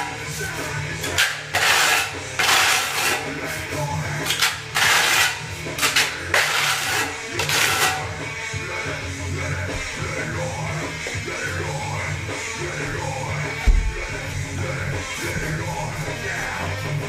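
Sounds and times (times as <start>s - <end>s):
rock music with electric guitar: 0.0s - 17.0s
short low thump: 13.6s - 14.1s.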